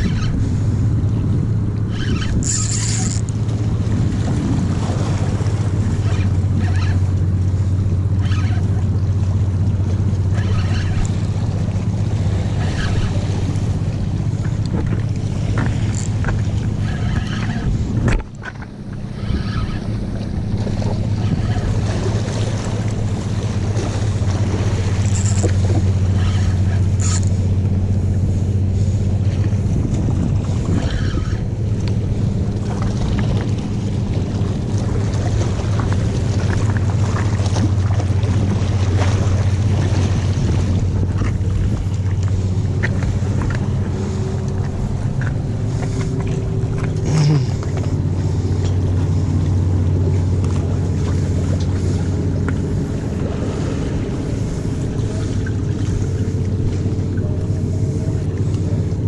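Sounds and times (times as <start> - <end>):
fishing reel gear whir: 0.0 - 32.4, 33.0 - 59.0.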